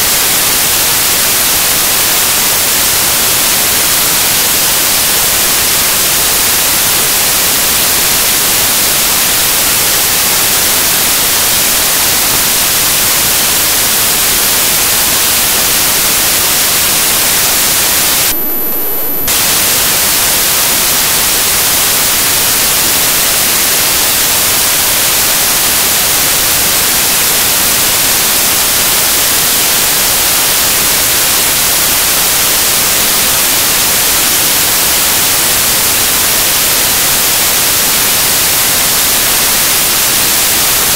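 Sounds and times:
thin high whine: 0.0s - 30.8s
loud static hiss: 0.0s - 40.9s.

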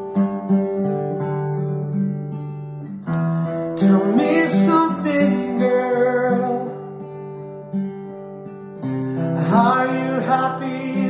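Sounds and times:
acoustic guitar chords: 0.0s - 11.0s
man singing: 3.8s - 7.0s, 9.2s - 11.0s.

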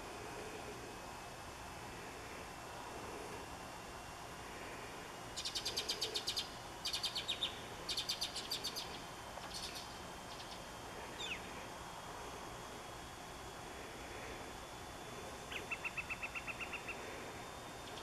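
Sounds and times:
songbird trilling: 5.4s - 10.6s, 11.2s - 11.5s, 15.5s - 17.0s.

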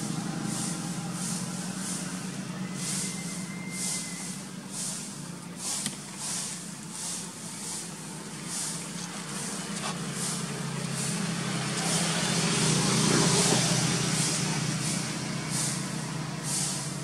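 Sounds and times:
pulsing high hiss: 0.0s - 17.0s
vehicle engine passing: 0.0s - 17.0s.

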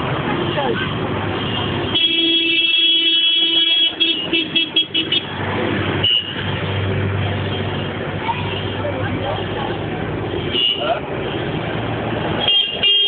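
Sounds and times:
street noise: 0.0s - 13.0s
vehicle horn blasts and toots: 1.4s - 5.3s, 10.4s - 11.0s, 12.4s - 13.0s.

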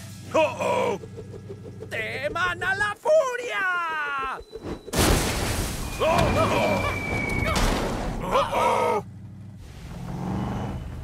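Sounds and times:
low rumble of earth: 0.0s - 3.1s
heavy crash thud: 4.9s - 8.2s
groaning vocal sounds: 8.2s - 9.0s.

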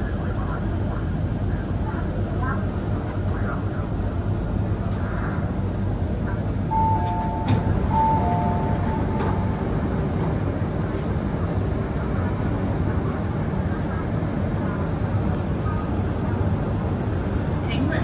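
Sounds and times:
train car rumble: 0.0s - 18.0s
two-tone electronic door chime: 6.7s - 9.8s.

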